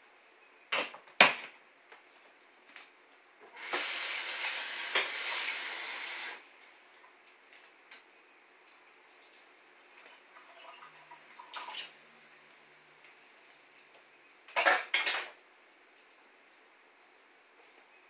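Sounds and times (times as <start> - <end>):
kitchen tap running: 3.5 - 6.4.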